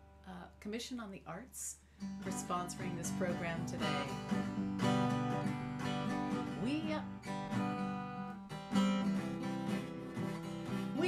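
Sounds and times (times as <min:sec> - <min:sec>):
guitar chords strummed: 0:02.0 - 0:11.0.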